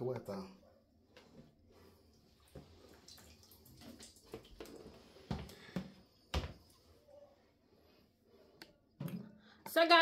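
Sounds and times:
water dripping and splashing: 2.1 - 5.8.

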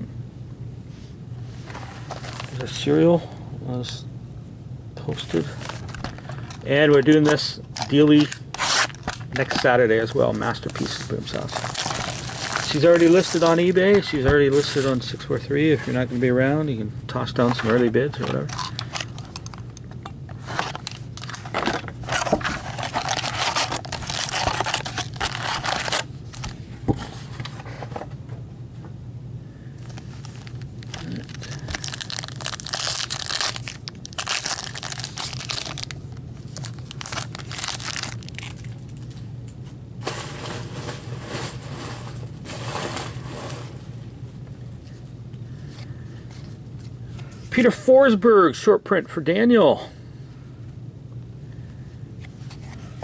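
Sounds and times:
low steady hum: 0.0 - 53.0
card packs tearing: 6.8 - 15.0, 20.4 - 26.5, 30.0 - 38.8
wrapper crinkling: 7.0 - 15.1, 20.6 - 26.5, 29.9 - 39.2.

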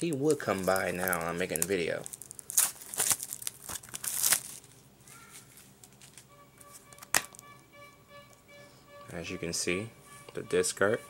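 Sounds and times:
plastic wrap crinkling and tearing: 0.0 - 6.3
faint background music: 6.3 - 11.0.

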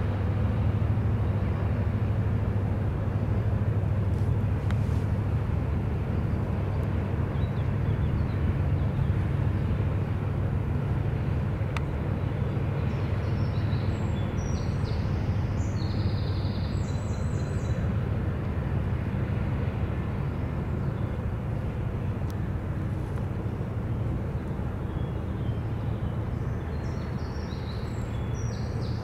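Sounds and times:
barge engine drone: 0.0 - 29.0.

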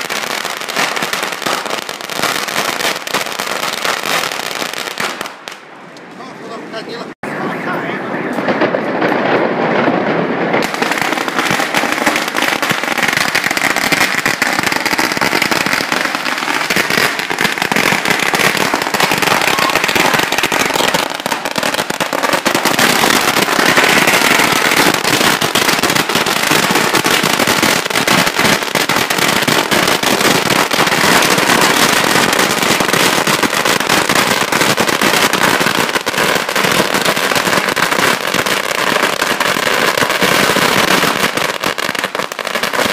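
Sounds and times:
firecrackers banging rapidly: 0.0 - 5.6, 7.3 - 42.9.

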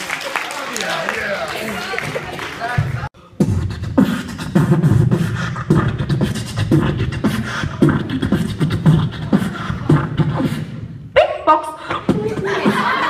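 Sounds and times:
beatboxing through microphone: 2.8 - 13.0.

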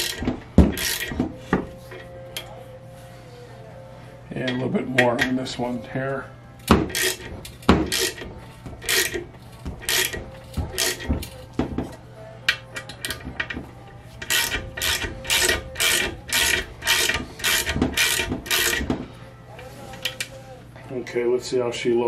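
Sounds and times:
hand ratchet clicking: 0.0 - 1.3, 6.6 - 11.9, 12.5 - 19.0.

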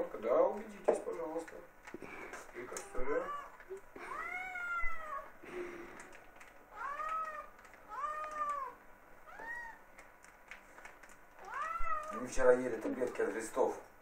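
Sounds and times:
cats meowing: 2.5 - 10.1, 11.0 - 12.6.

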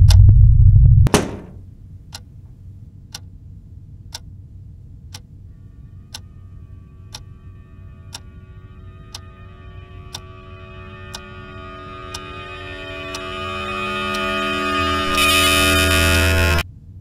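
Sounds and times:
low steady hum: 0.0 - 17.0
wall clock ticking: 9.1 - 9.4, 10.1 - 10.3, 11.1 - 11.3.

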